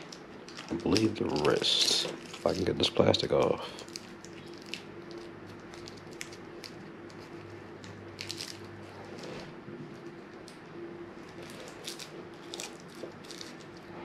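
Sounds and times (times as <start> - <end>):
plastic bag crinkling: 0.0 - 10.6, 11.2 - 14.0.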